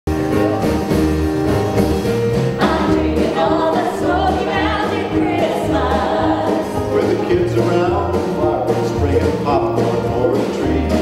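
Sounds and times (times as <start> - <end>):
live band playing: 0.1 - 11.0
group singing: 2.6 - 11.0.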